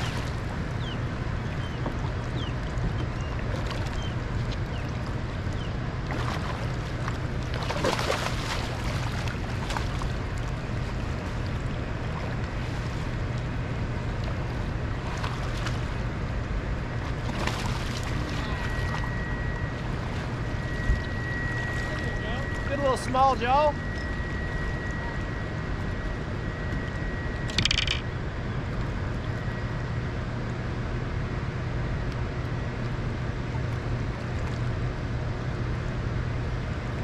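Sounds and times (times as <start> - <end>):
water rushing: 0.0 - 26.0
low hum: 0.0 - 37.0
wind: 0.0 - 37.0
knocks or splashes: 7.5 - 10.2
thin high tone: 18.1 - 28.1.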